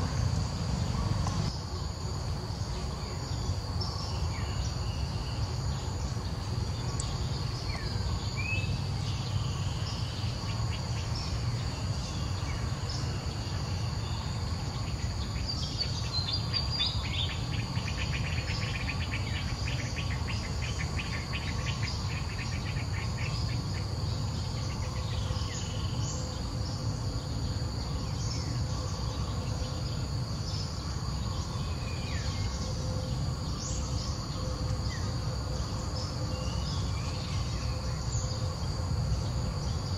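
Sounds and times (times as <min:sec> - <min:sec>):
low steady rumble: 0:00.0 - 0:17.2
insects droning: 0:00.0 - 0:39.9.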